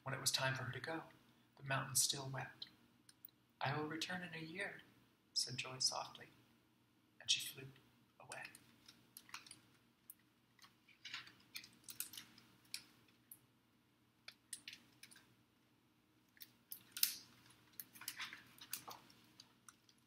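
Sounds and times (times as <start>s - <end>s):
book page rustling: 16.8s - 20.0s.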